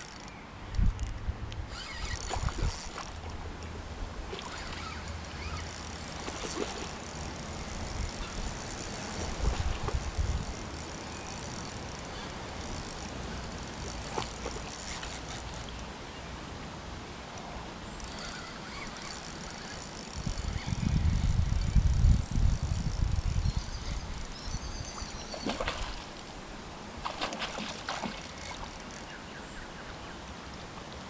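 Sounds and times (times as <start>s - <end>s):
fishing reel clicking whirr: 0.0s - 3.7s, 4.4s - 15.9s, 18.0s - 25.4s, 27.7s - 29.2s.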